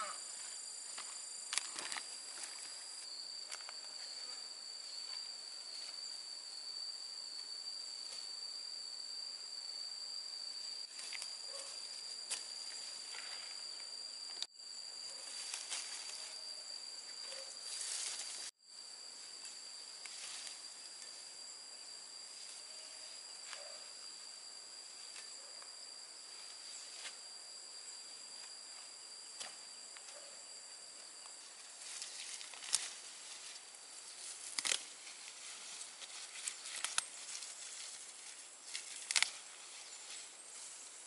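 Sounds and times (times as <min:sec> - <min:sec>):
insects droning: 0:00.0 - 0:41.0
faint ticks and rustles: 0:31.2 - 0:41.0.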